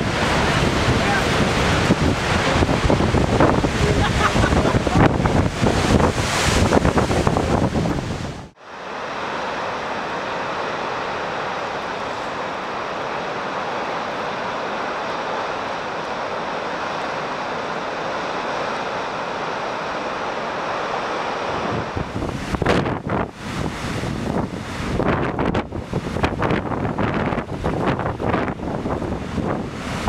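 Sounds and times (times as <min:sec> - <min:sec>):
wind buffeting microphone: 0:00.0 - 0:08.6, 0:21.4 - 0:30.0
surf churning over rocks: 0:00.0 - 0:30.0.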